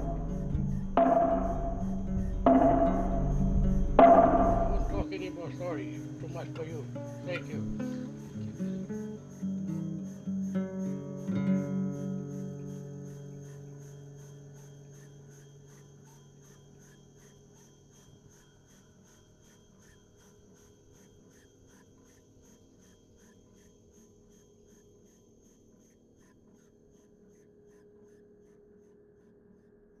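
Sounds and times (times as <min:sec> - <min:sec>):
acoustic guitar chord ringing: 0:00.0 - 0:13.4
faint even ticking: 0:00.0 - 0:16.1.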